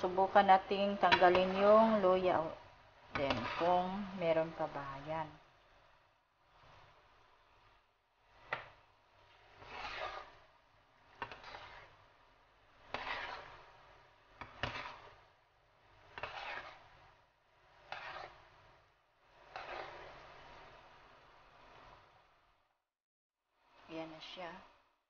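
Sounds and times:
utensil scraping and knocking pan: 0.1s - 2.5s, 3.1s - 5.0s, 8.2s - 10.5s, 11.1s - 12.1s, 12.7s - 15.3s, 16.0s - 20.7s.

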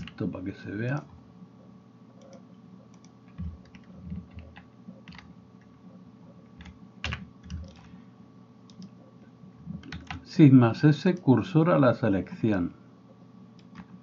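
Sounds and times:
keyboard and mouse clicking: 0.0s - 0.2s, 2.2s - 5.8s, 6.5s - 7.9s, 8.7s - 9.0s, 9.8s - 10.2s, 13.6s - 14.0s
faint steady hum: 0.0s - 14.0s.

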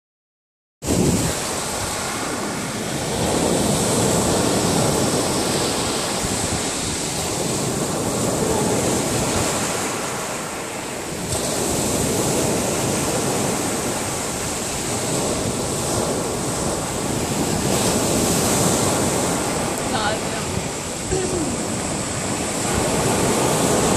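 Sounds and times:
waves breaking on pebble beach: 0.9s - 23.9s.

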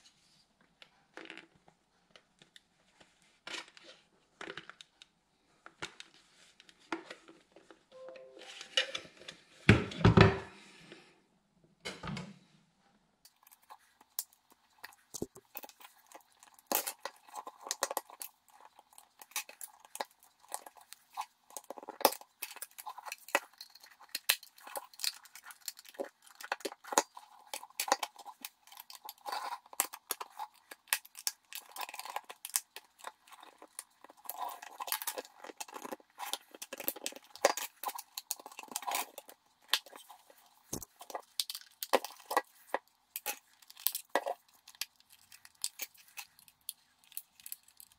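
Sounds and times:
plastic clicks scrapes and creaks: 13.3s - 47.9s.

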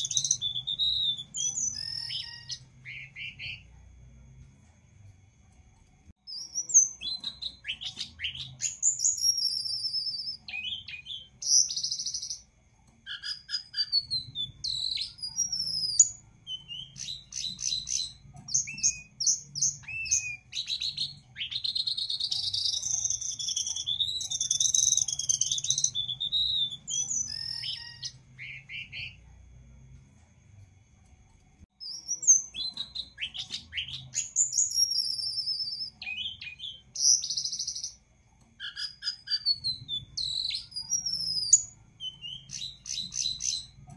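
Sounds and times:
songbird singing: 0.0s - 4.4s, 6.2s - 29.6s, 31.8s - 43.9s.

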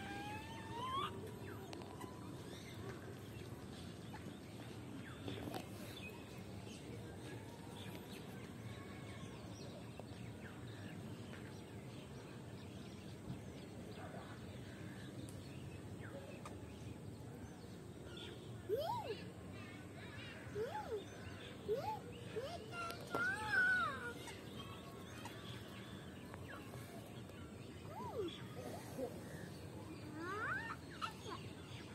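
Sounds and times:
park background noise: 0.0s - 31.9s
birds chirping: 9.9s - 31.9s.

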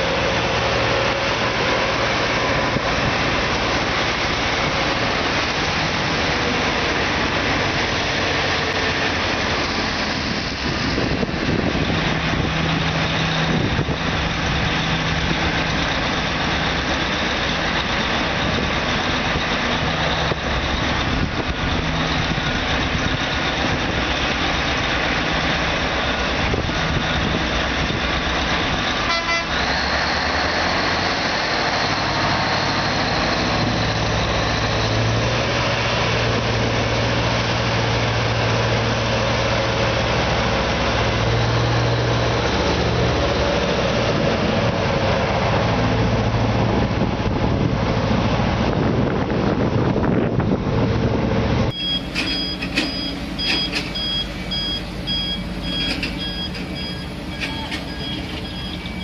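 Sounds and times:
diesel truck engine running: 0.0s - 59.0s
truck horn: 29.0s - 29.8s.

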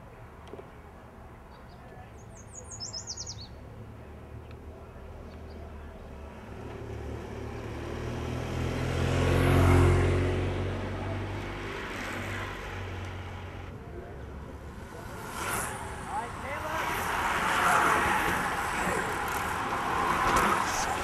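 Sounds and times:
vehicle engine passing: 6.6s - 21.0s.

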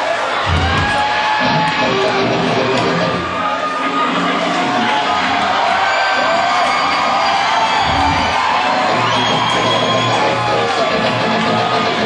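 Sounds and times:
crowd whooping and cheering: 0.0s - 12.0s
hard rock band playing live: 0.4s - 3.3s, 7.8s - 12.0s.

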